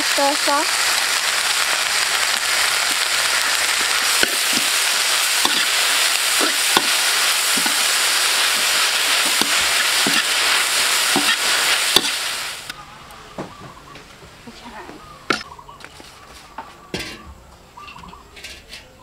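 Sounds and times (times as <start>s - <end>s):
chives sizzling in oil: 0.0s - 12.8s
metal spatula scraping wok: 4.2s - 12.3s, 17.9s - 19.0s.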